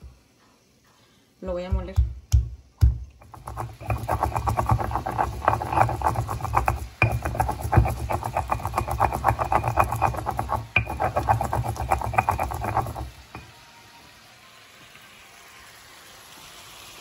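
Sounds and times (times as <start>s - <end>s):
stone knocking on stone: 1.7s - 13.5s
pestle grinding in stone bowl: 2.0s - 13.5s.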